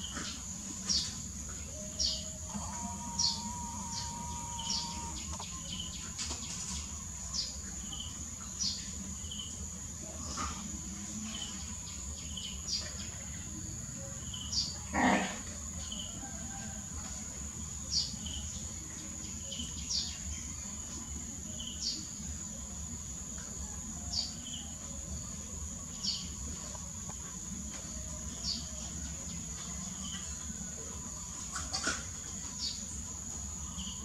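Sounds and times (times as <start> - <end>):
insects droning: 0.0 - 34.0
bird chirping: 0.8 - 9.5.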